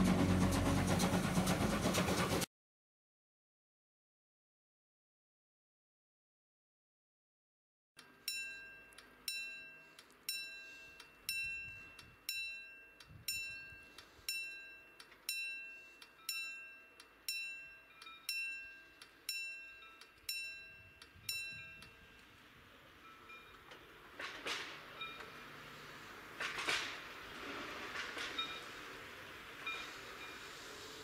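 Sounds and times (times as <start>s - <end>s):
level crossing bell ringing: 8.1s - 22.1s.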